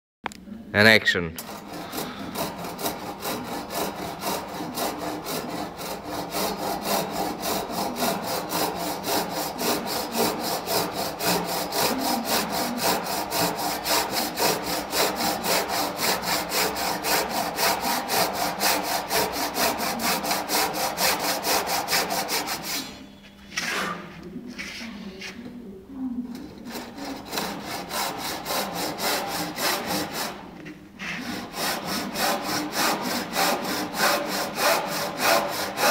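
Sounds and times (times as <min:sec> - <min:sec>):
handsaw cutting wood: 0:01.4 - 0:24.0, 0:26.4 - 0:35.9.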